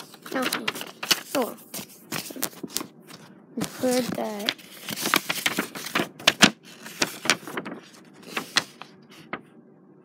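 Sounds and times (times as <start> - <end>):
hands handling phone and paper: 0.0 - 9.5.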